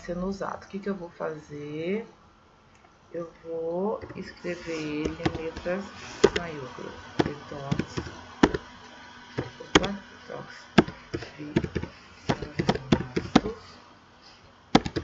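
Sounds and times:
computer keyboard typing: 4.8s - 6.5s, 7.2s - 8.7s, 10.8s - 13.6s, 14.8s - 15.0s.

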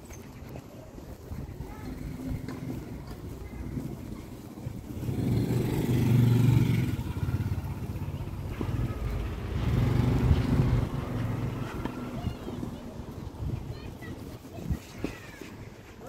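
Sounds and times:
motor engine passing: 1.8s - 12.9s.

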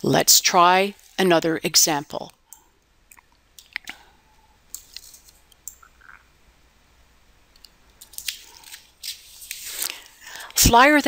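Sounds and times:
lip smacks: 3.1s - 4.0s.

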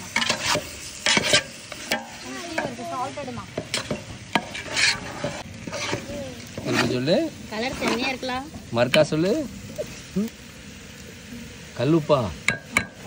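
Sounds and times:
metal spoon scraping a pot: 0.0s - 2.7s, 3.6s - 8.2s
food sizzling: 0.0s - 13.0s.

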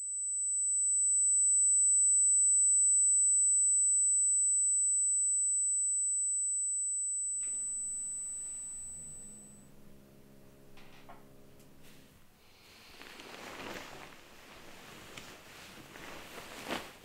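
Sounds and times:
high-pitched ringing tone: 0.0s - 10.4s
low hum: 7.0s - 15.4s.

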